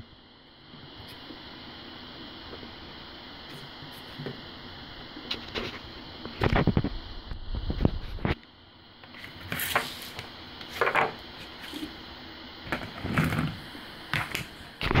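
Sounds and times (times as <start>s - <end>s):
objects being handled: 9.0s - 12.0s.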